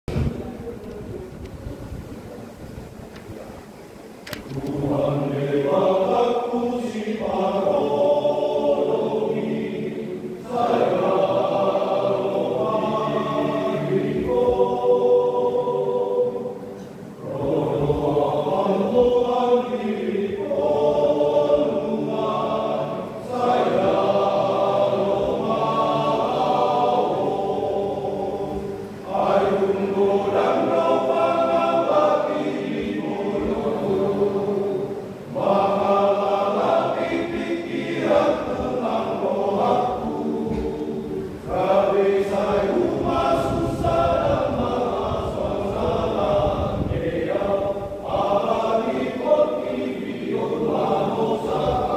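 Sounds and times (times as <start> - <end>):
men's choir singing: 4.4 - 51.9.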